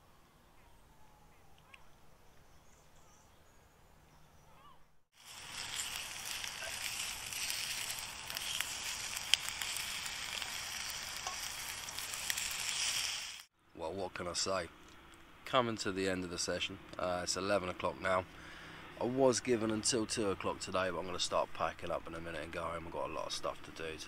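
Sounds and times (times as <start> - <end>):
bacon sizzling in a grill pan: 5.2 - 13.5.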